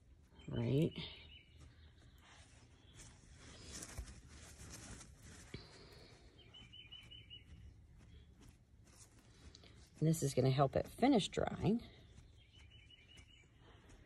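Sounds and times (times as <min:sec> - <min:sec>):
faint outdoor ambience: 0:00.0 - 0:14.0
bird trilling chirps: 0:00.4 - 0:02.1, 0:06.4 - 0:07.8, 0:12.0 - 0:13.6.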